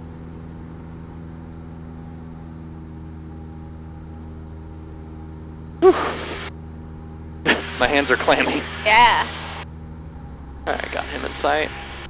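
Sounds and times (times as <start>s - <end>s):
propeller plane engine droning: 0.0s - 12.0s.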